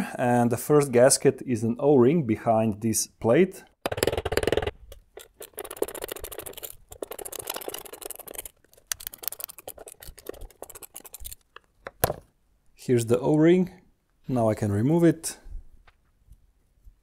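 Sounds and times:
screwdriver clicking and scraping: 0:03.9 - 0:11.7.

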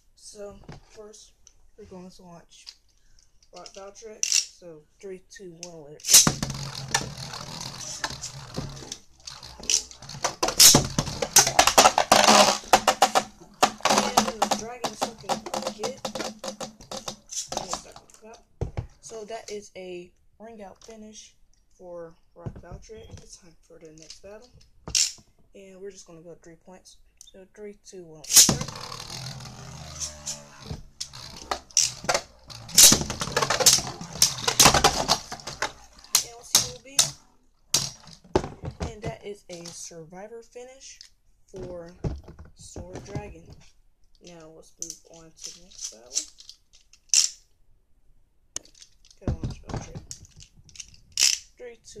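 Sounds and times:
spinning top whirring: 0:06.0 - 0:18.2, 0:28.3 - 0:37.1.

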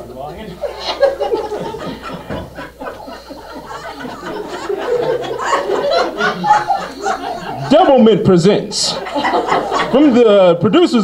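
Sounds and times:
audience laughing: 0:00.4 - 0:10.6
cast laughing on stage: 0:00.6 - 0:08.1.

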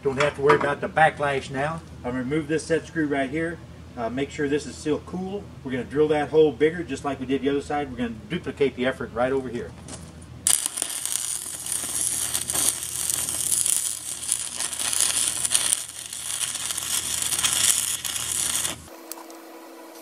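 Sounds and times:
welding arc crackling: 0:09.9 - 0:20.0.

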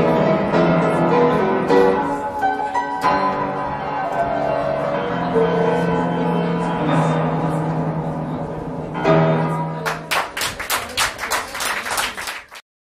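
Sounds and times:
upright piano playing: 0:00.0 - 0:12.5
hand clapping: 0:09.8 - 0:12.6.

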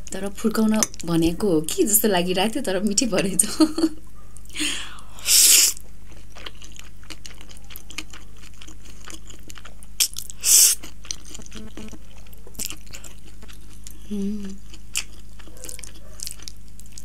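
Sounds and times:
person slurping spaghetti: 0:05.2 - 0:05.8, 0:10.4 - 0:12.0
chewing with wet mouth clicks: 0:05.7 - 0:14.0, 0:14.6 - 0:17.0.

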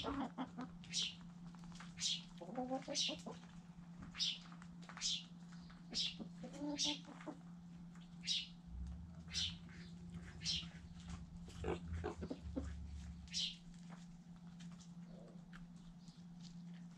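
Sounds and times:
chickens clucking: 0:00.0 - 0:03.6, 0:05.9 - 0:07.5, 0:09.1 - 0:14.0
steady low hum: 0:00.0 - 0:16.9.

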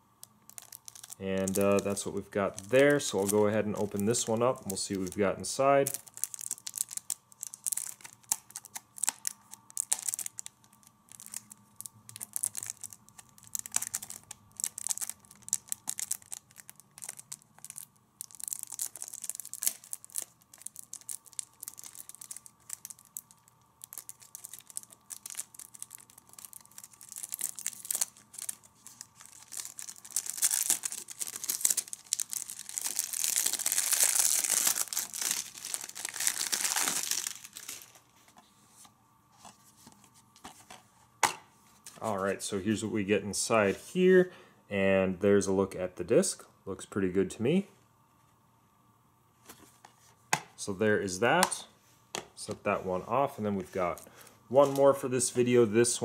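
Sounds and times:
plastic wrap crinkling: 0:00.0 - 0:40.7, 0:53.5 - 0:55.5.

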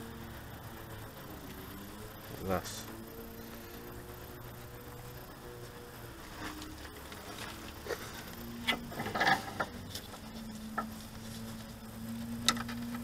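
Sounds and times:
faint steady hum: 0:00.0 - 0:13.0
hand tools clicking and knocking: 0:08.6 - 0:10.9.

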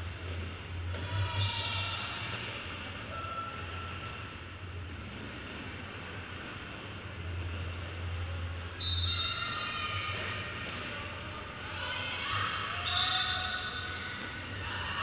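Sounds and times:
roller skate wheels rolling: 0:04.8 - 0:08.3.

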